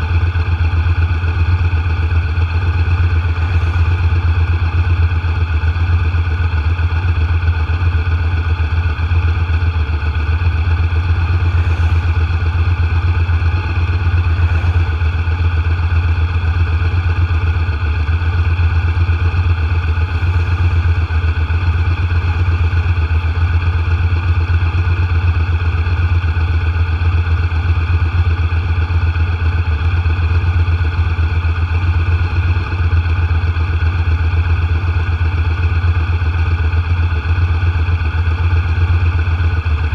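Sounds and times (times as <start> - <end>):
road noise: 0.0 - 27.0
vehicle engine low hum: 0.0 - 39.9.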